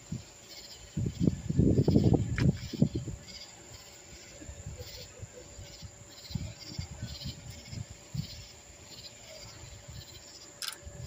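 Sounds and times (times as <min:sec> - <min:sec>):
night insects pulsing calls: 0:00.0 - 0:11.0
sharp click: 0:10.6 - 0:10.8.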